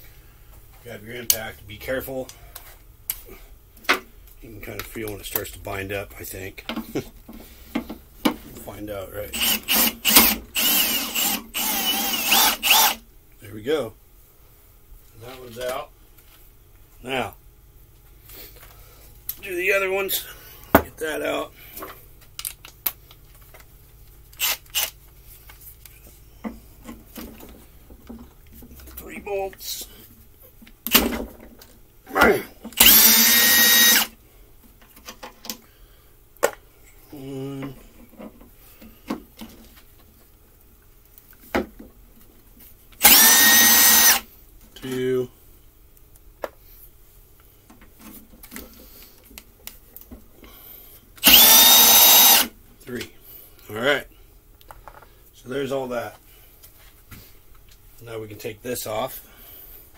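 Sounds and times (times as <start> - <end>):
cordless drill motor whine: 9.3 - 13.0, 24.4 - 25.0, 32.8 - 34.2, 43.0 - 44.3, 51.2 - 52.5
short rasping bursts: 9.3 - 13.0, 32.8 - 34.1, 43.0 - 44.2, 51.2 - 52.5.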